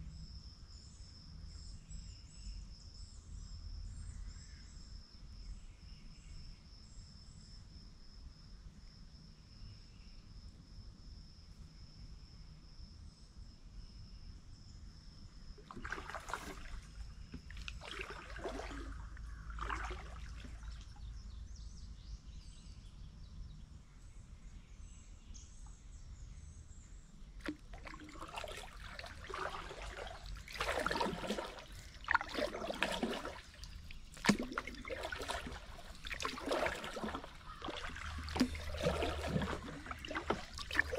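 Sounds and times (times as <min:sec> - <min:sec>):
paddle strokes swishing in water: 0:15.6 - 0:21.0, 0:27.4 - 0:40.9.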